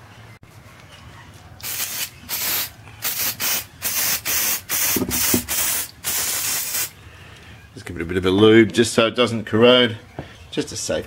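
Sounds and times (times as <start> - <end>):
aerosol spray can hissing: 1.6 - 6.9.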